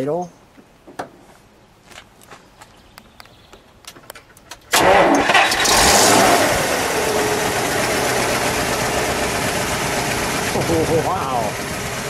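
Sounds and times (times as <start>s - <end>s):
car engine starting and running: 4.7s - 12.0s.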